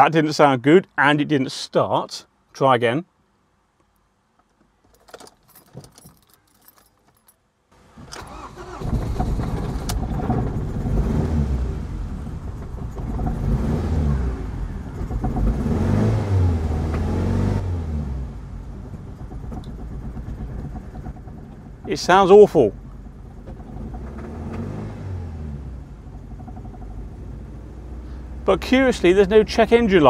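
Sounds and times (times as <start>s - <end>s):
car engine misfiring: 7.8s - 30.0s.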